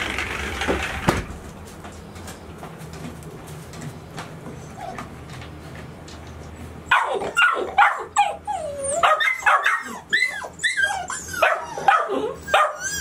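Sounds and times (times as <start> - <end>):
puppies barking and howling: 6.9 - 13.0.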